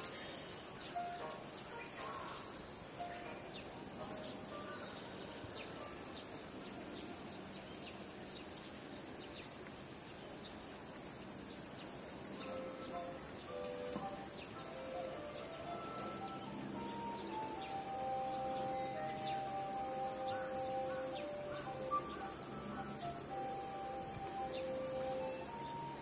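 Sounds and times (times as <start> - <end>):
insect chorus drone: 0.0 - 26.0
high chirps: 12.4 - 26.0.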